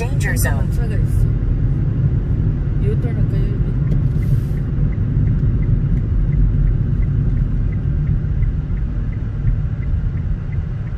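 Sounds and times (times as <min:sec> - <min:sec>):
car driving rumble inside cabin: 0:00.0 - 0:10.9
faint light ticking: 0:03.8 - 0:10.9.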